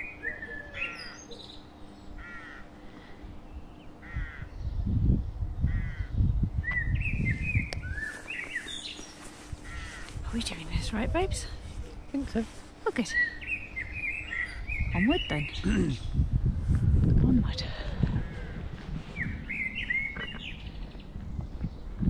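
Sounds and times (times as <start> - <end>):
small birds chirping: 0.0 - 16.4, 17.2 - 22.0
crow cawing: 2.2 - 2.8, 4.0 - 4.5, 5.7 - 6.1, 9.6 - 10.2
low rumble: 14.6 - 22.0.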